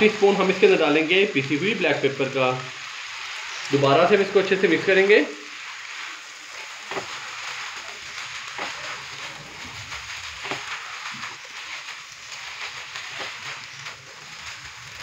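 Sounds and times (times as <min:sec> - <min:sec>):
noodles sizzling in a wok: 0:00.0 - 0:15.0
utensils scraping a pan: 0:05.4 - 0:15.0.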